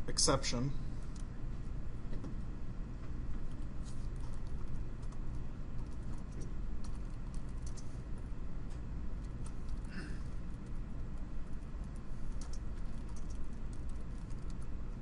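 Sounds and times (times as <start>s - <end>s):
keyboard typing: 3.4s - 8.3s, 9.2s - 14.8s.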